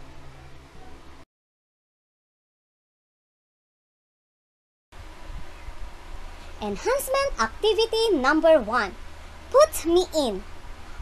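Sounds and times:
low hum and hiss of recording noise: 0.0 - 1.2, 5.0 - 11.0.

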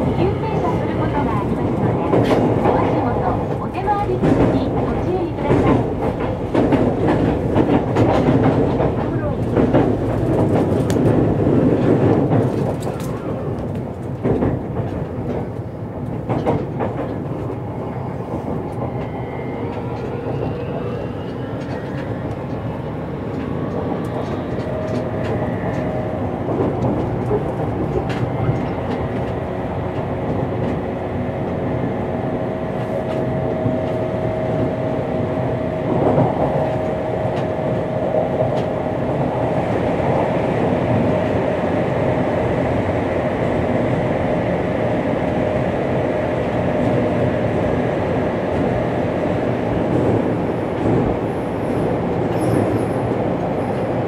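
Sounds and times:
train wheel clacks: 0.0 - 17.6, 21.2 - 31.7
train wheels rumbling on rail: 0.0 - 54.0.

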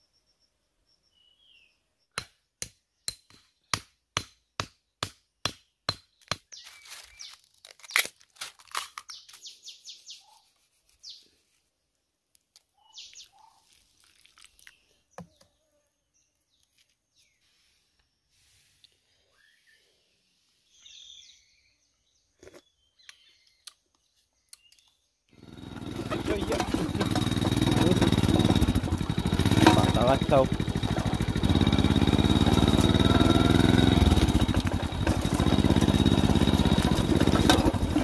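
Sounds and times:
bamboo crackling and tearing: 6.5 - 9.6, 12.3 - 15.0.

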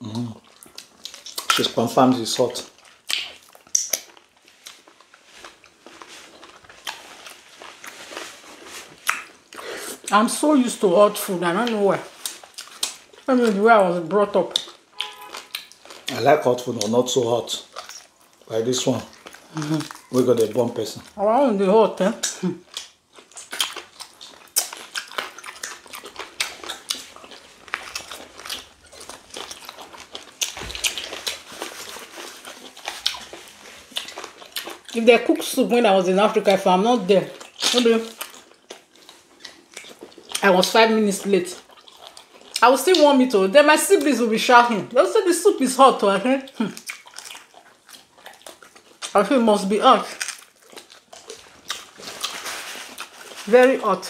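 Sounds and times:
chewing: 0.0 - 10.2, 11.6 - 13.6, 14.4 - 21.2, 22.2 - 36.6, 37.2 - 43.2, 46.4 - 54.0
wet lip smacks: 3.0 - 4.8.

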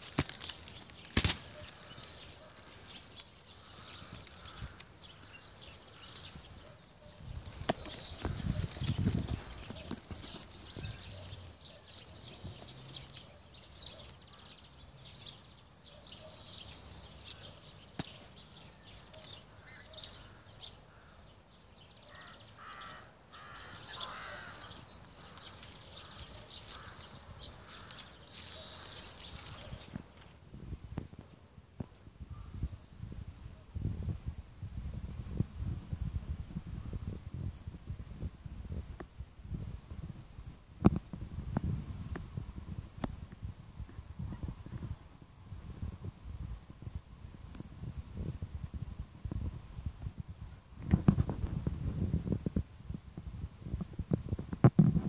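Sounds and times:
small birds chirping: 0.0 - 30.5.

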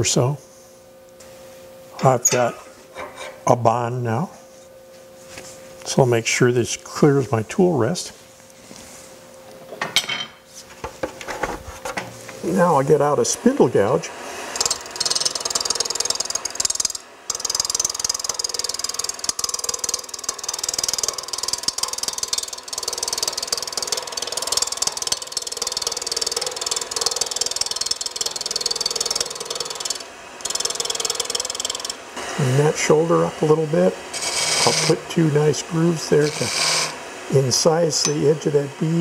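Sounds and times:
gouge cutting on wood lathe: 12.9 - 39.0.

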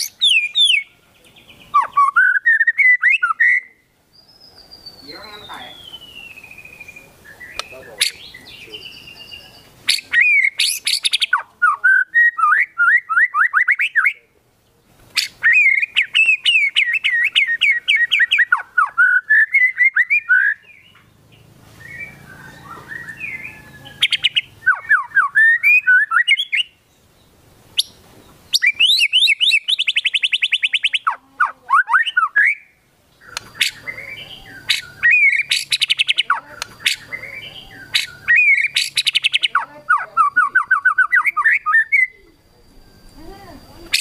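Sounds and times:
bird singing whistled phrases: 0.0 - 14.2, 15.2 - 21.0, 21.8 - 26.8, 27.8 - 44.0
bird rapid rattling trill: 34.6 - 41.0, 43.1 - 44.0.

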